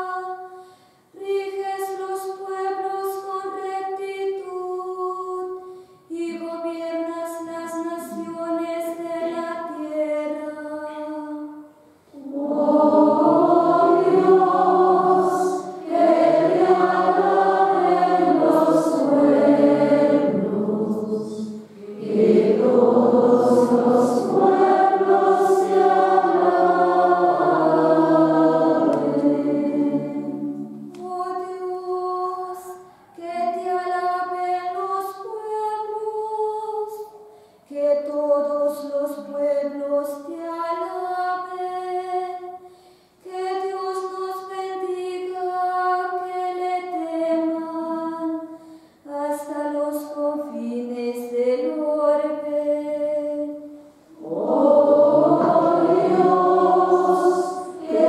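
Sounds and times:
choir singing: 12.1 - 36.0, 49.4 - 58.0.

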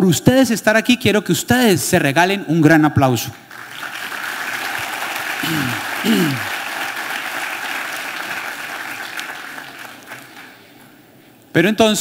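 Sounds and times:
audience applauding: 3.5 - 10.7.

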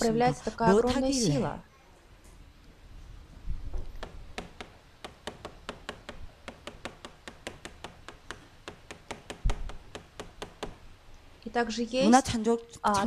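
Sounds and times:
chalk tapping on blackboard: 4.0 - 10.8.

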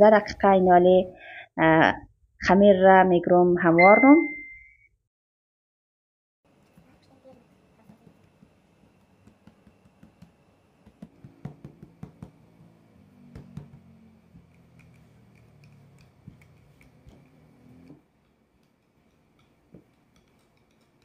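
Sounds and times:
hands patting dough on board: 7.8 - 12.5, 13.3 - 17.3.

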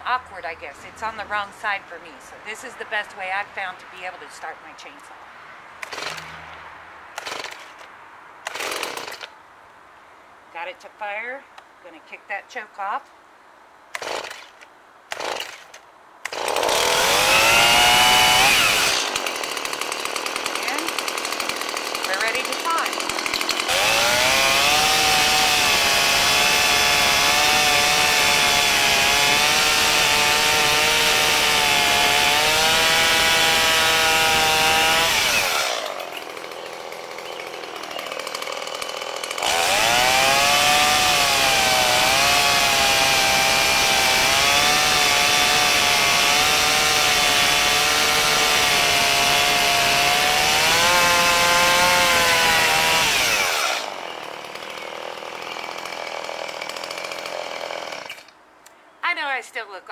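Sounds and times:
chainsaw cutting log: 5.8 - 6.6, 7.2 - 9.4, 13.9 - 58.4.

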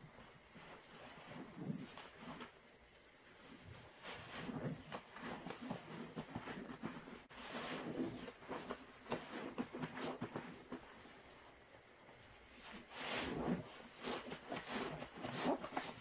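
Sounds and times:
wet sponge squelching in suds: 4.0 - 11.1, 12.6 - 16.0.

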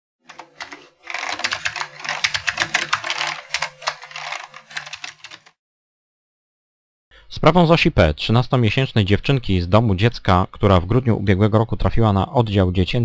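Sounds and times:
keyboard typing clicks: 0.3 - 5.6.

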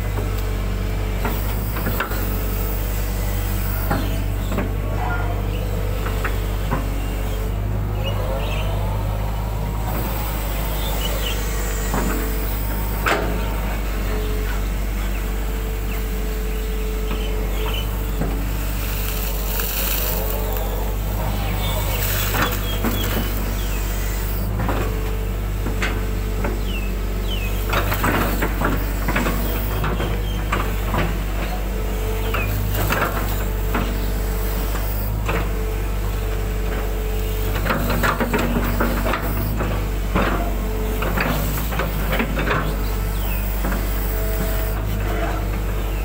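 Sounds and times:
excavator diesel engine running: 0.0 - 46.0
hydraulic whine: 0.0 - 46.0
steel bucket scraping mud: 17.8 - 24.5.

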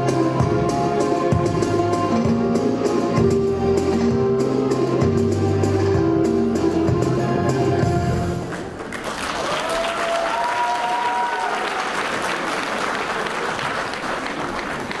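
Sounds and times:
audience applauding: 8.5 - 15.0
audience cheering: 8.9 - 15.0.

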